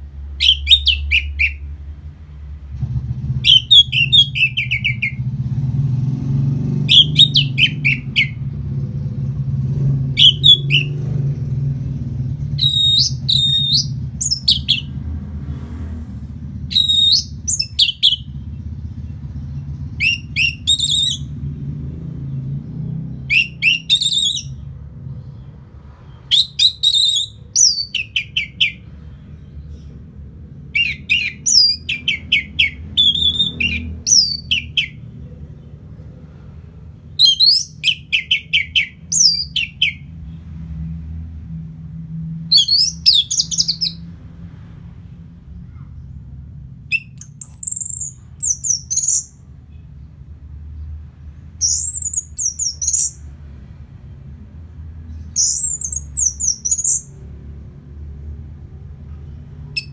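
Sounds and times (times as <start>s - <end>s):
thrush singing: 3.4s - 8.5s, 9.9s - 15.1s.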